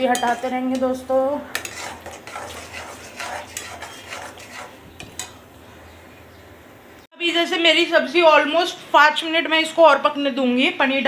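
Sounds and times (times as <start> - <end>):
metal spoon scraping a pan: 0.0 - 5.5.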